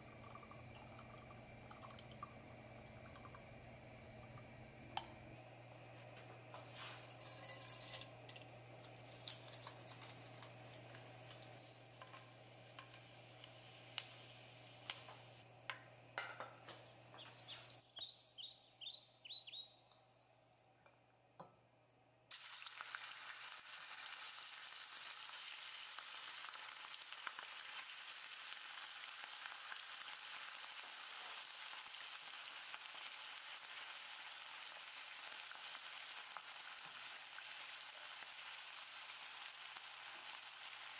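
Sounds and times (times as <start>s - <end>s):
hot oil crackling in a frying pan: 0.0s - 5.2s, 6.7s - 16.6s, 22.3s - 40.9s
spices popping in oil: 0.0s - 5.4s, 6.6s - 18.1s, 22.3s - 40.9s
meat sizzling in oil: 7.0s - 15.4s, 22.3s - 40.9s.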